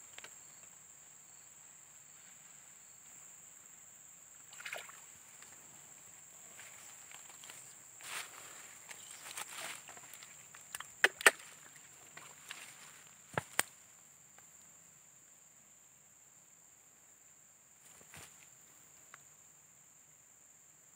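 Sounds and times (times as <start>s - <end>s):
high-pitched insect trill: 0.0s - 20.9s
rustling in grass: 6.5s - 10.7s.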